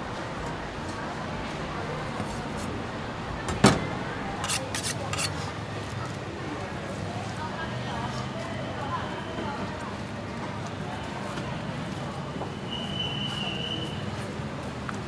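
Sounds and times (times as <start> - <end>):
knife scraping along steel: 4.4 - 5.4.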